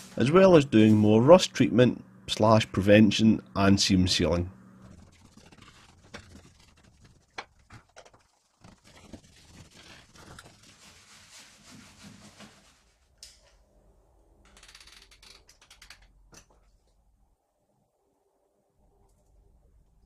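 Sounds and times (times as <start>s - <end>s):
brush scrubbing metal: 4.8s - 13.0s.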